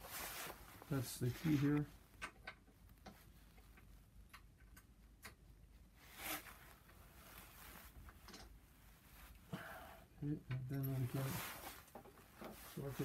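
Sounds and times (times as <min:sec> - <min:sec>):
rustle against clothing: 0:00.0 - 0:02.1, 0:06.0 - 0:09.5, 0:10.8 - 0:13.0.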